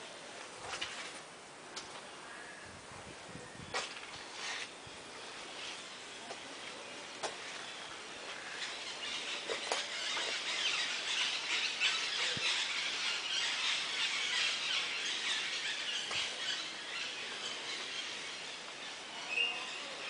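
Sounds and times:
birds chirping: 3.3 - 20.0
insects calling: 4.9 - 20.0.

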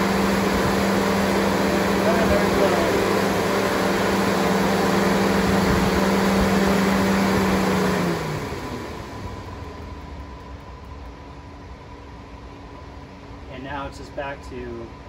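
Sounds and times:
cooling fans rushing air: 0.0 - 15.0
fan motor hum: 0.0 - 15.0.

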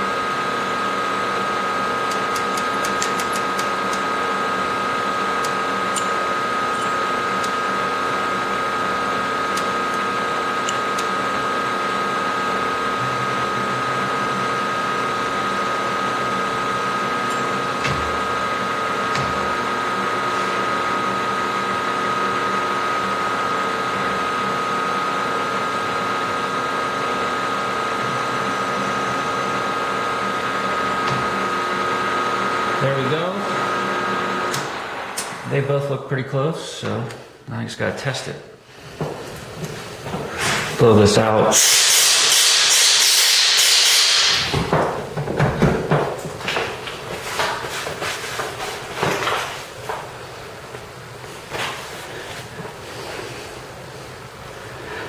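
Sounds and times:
end mill cutting metal: 0.2 - 22.3, 27.2 - 36.0, 41.5 - 44.6.

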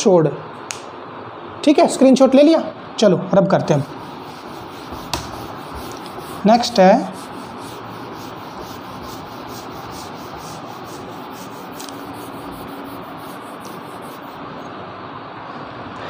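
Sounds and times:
duster scrubbing whiteboard: 3.7 - 14.4.

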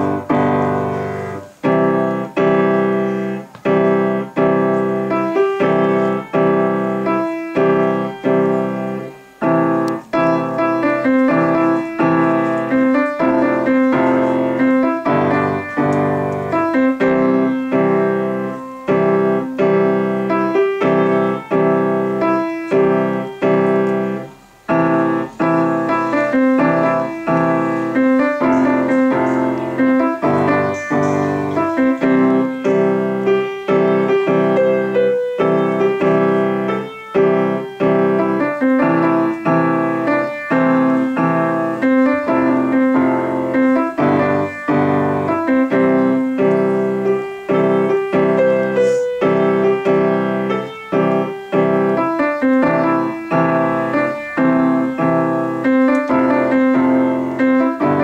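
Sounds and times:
grand piano piece: 0.0 - 58.0.

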